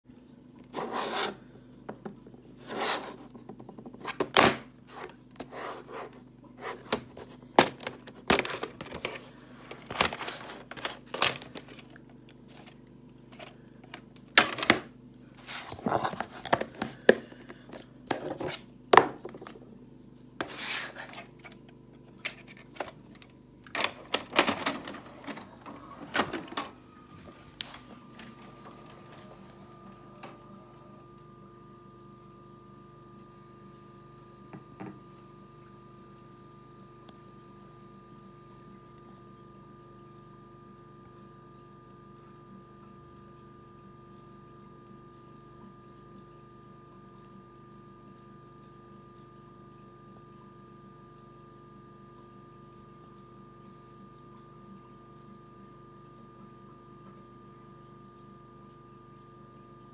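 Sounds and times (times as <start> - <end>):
steady low hum: 0.1 - 59.9
plastic cassette case clicks and rattles: 6.9 - 12.0, 23.7 - 25.5.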